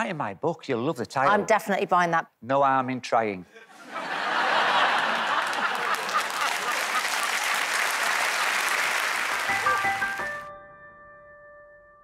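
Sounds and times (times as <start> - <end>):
audience applauding: 4.2 - 10.5.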